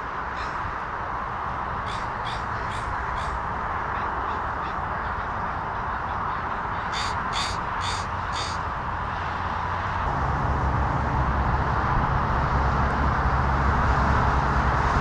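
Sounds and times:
distant jet engines roar: 0.0 - 15.0
crow cawing: 0.4 - 0.7, 1.8 - 5.2, 6.5 - 8.7.

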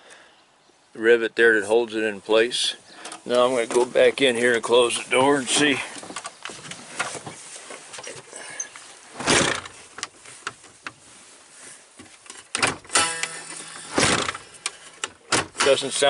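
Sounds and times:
truck door slamming shut: 9.2 - 9.7, 13.8 - 14.4.

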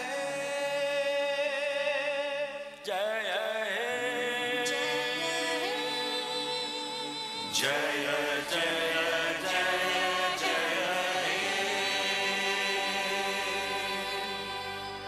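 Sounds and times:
voices singing together: 0.0 - 15.0
music: 3.5 - 15.0.

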